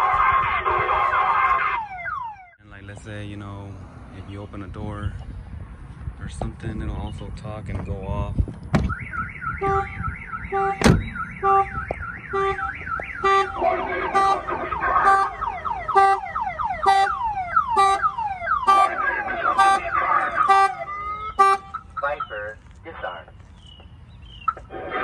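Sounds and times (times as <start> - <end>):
car alarm siren: 0.0 - 2.6, 8.8 - 23.3.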